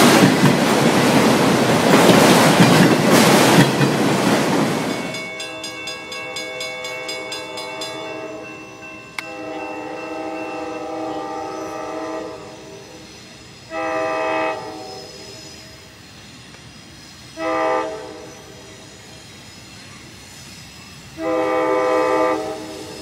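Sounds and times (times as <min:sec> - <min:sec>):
train rumble: 0:00.0 - 0:23.0
train horn blasts: 0:06.1 - 0:08.6, 0:09.2 - 0:13.0, 0:13.7 - 0:15.2, 0:17.4 - 0:18.5, 0:21.2 - 0:23.0.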